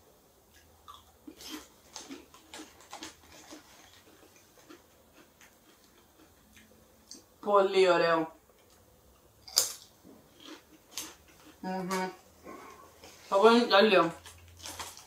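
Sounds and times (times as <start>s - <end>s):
potato chips crunching: 0.8s - 7.2s, 9.4s - 12.0s, 14.2s - 15.0s.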